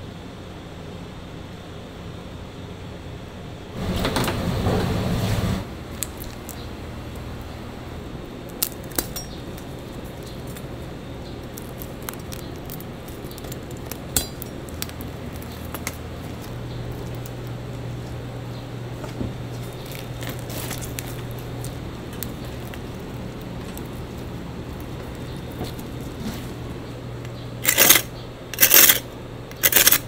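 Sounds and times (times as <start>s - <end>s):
low hum: 0.0s - 30.0s.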